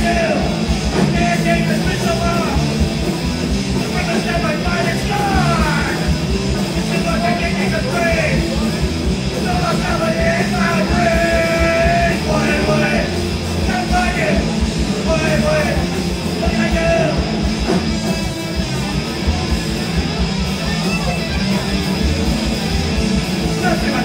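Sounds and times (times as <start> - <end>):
singer shouting into microphone: 0.0 - 2.7, 3.8 - 8.7, 9.3 - 17.3, 23.4 - 24.0
punk band playing live: 0.0 - 24.0.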